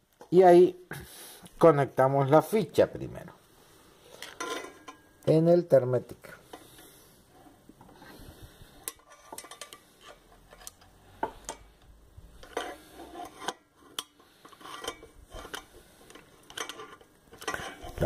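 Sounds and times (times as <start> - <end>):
screwdriver clicking and scraping metal: 8.8 - 11.8, 12.4 - 18.0.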